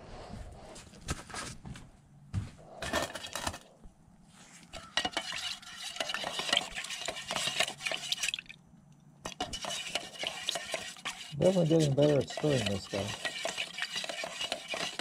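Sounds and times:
stir stick scraping metal paint can: 0:04.7 - 0:08.6, 0:09.2 - 0:15.0.

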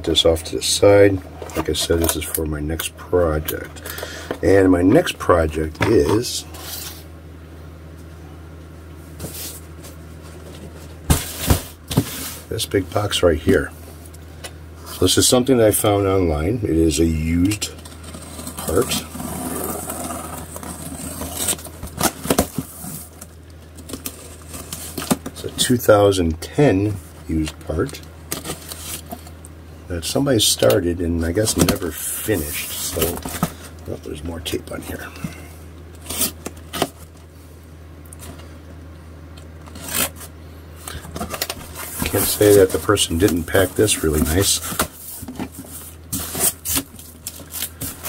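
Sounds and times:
steady low hum: 0:00.0 - 0:48.0
cardboard box scraping and rustling: 0:18.0 - 0:23.1, 0:41.2 - 0:48.0
packing tape crackles: 0:39.6 - 0:48.0.

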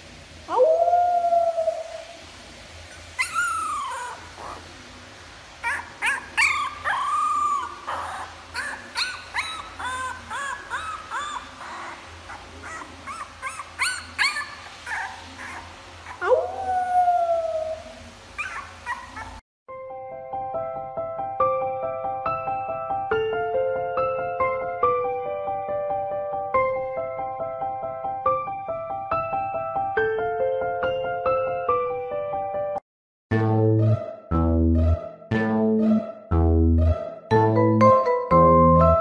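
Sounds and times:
puppy howling: 0:00.5 - 0:02.2, 0:02.9 - 0:04.7, 0:05.6 - 0:19.4
puppy yips and squeaks: 0:02.9 - 0:04.6, 0:05.6 - 0:16.3, 0:18.4 - 0:19.4.

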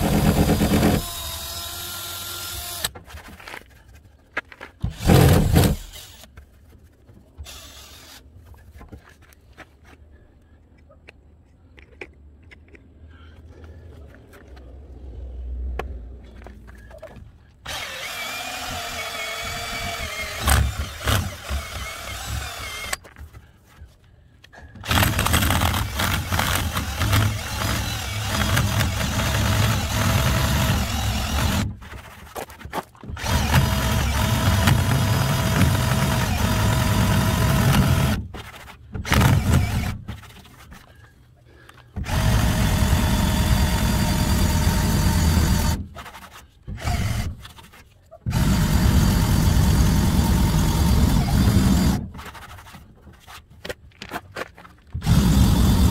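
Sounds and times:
cordless drill spinning: 0:00.0 - 0:03.0, 0:04.9 - 0:06.4, 0:07.4 - 0:08.3, 0:17.6 - 0:23.1, 0:24.8 - 0:32.1, 0:33.0 - 0:40.2, 0:42.0 - 0:47.6, 0:48.3 - 0:52.7, 0:55.0 - 0:55.9.

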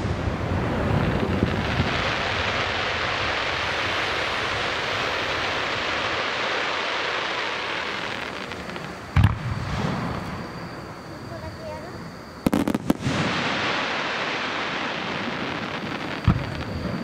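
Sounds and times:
fireworks hissing and crackling: 0:00.0 - 0:17.0
deep firework boom: 0:07.4 - 0:11.0, 0:12.4 - 0:17.0.

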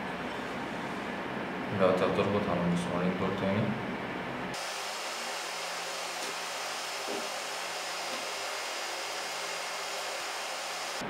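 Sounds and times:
steady hiss: 0:04.5 - 0:11.0.

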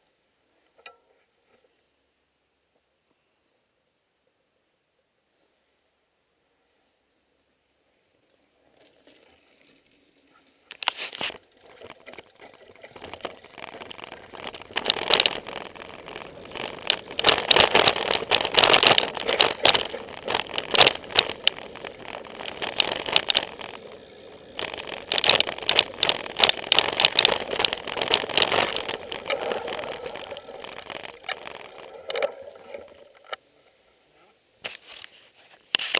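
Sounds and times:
mountain bike rattling: 0:08.2 - 0:33.4
tyre noise on dirt: 0:08.9 - 0:33.2.

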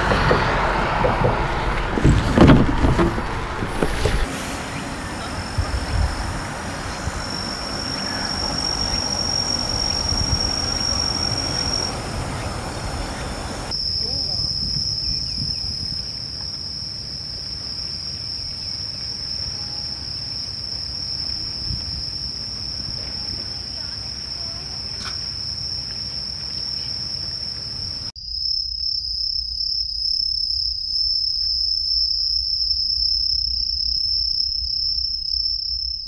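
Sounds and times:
low rumble background noise: 0:00.0 - 0:13.7
insects trilling: 0:02.1 - 0:36.0.

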